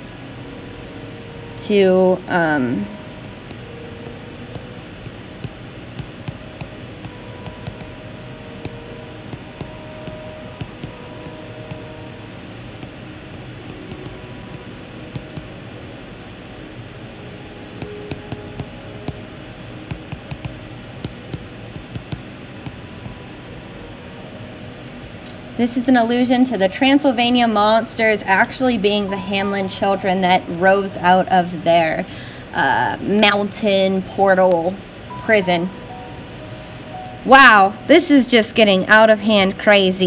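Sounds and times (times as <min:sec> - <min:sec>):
fan-like hum: 0:00.0 - 0:40.0
stylus tapping on glass screen: 0:04.5 - 0:08.0, 0:12.8 - 0:15.5, 0:19.9 - 0:23.2.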